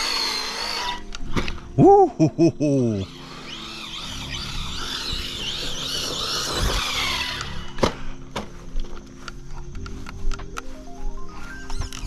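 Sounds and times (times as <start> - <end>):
electric motor whine: 0.0 - 1.8, 2.7 - 10.2.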